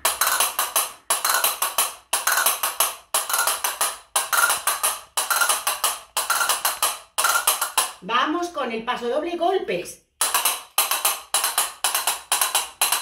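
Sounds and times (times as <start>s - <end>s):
castanets clicking: 0.0s - 8.0s, 10.2s - 13.0s.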